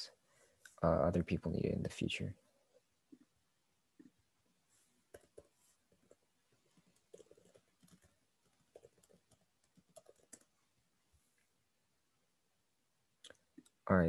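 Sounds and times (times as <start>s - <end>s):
keyboard typing clicks: 8.7s - 10.5s.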